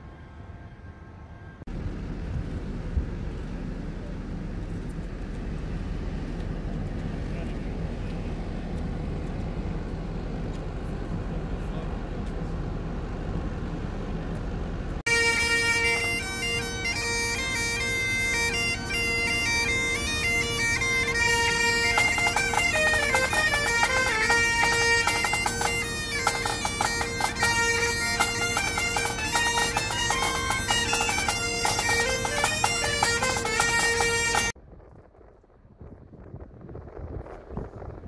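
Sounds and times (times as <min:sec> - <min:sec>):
bagpipes playing: 0:15.1 - 0:34.6.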